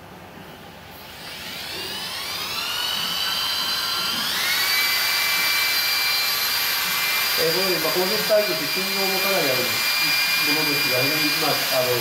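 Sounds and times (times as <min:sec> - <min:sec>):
electric hammer drill motor whine: 0:00.9 - 0:12.0.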